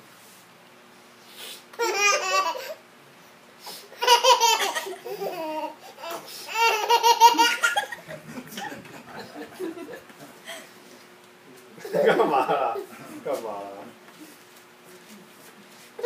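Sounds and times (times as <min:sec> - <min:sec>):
toddler laughing: 0:01.8 - 0:02.8, 0:04.0 - 0:10.1.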